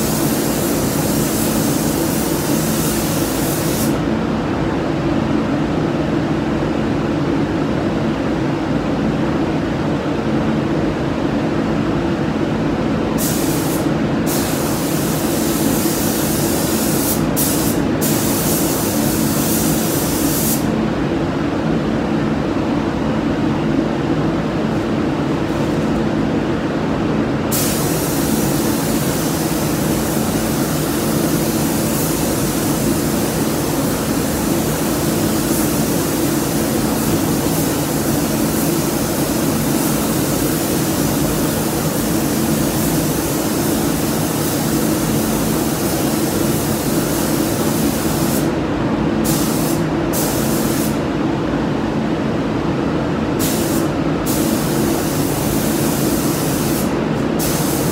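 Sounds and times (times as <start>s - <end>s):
paint spray gun hissing: 0.0s - 4.0s, 13.2s - 20.7s, 27.5s - 48.5s, 49.2s - 51.0s, 53.4s - 57.9s.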